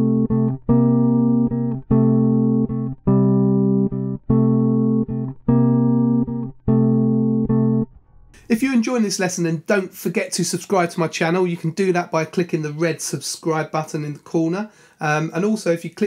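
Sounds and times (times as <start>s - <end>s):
electric bass guitar blues riff: 0.0s - 8.6s.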